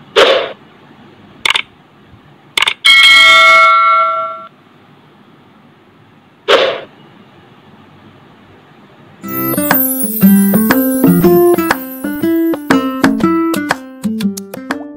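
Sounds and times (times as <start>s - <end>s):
notification bell ding: 9.2s - 13.1s.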